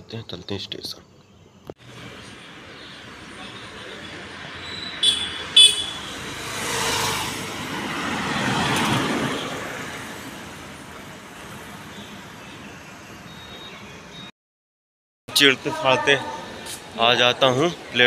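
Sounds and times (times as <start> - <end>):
street traffic noise: 0.0 - 14.3, 15.3 - 18.0
motor vehicle passing by: 1.8 - 13.3.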